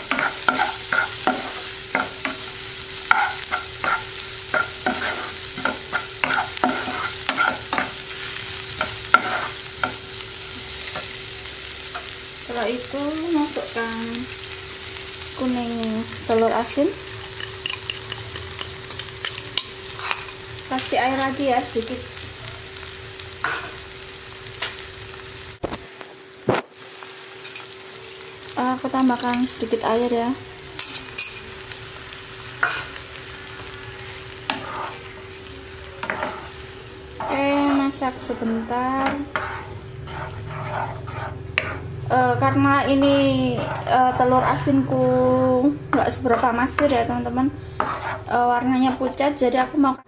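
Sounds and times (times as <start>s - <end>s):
spatula scraping a frying pan: 0.0s - 11.2s, 17.1s - 20.4s, 34.2s - 35.2s, 36.0s - 42.0s, 42.9s - 44.1s, 45.9s - 47.0s, 47.6s - 49.4s
oil sizzling: 0.0s - 50.0s.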